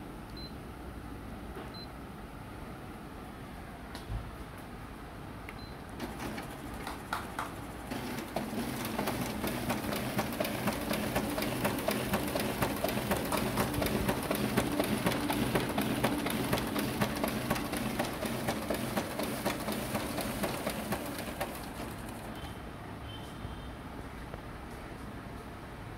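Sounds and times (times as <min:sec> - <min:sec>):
document feeder clicking and whirring: 0:06.0 - 0:22.6.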